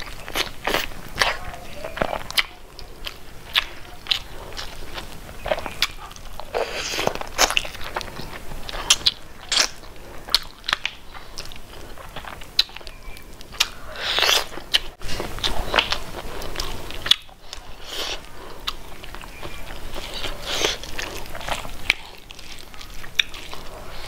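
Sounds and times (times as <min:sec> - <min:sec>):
chewing crunchy food: 0:00.0 - 0:24.0.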